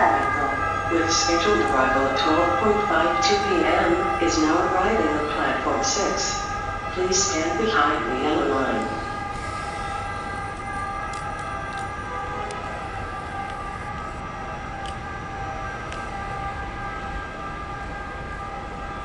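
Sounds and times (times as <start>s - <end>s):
train rolling past with high whine: 0.0s - 19.0s.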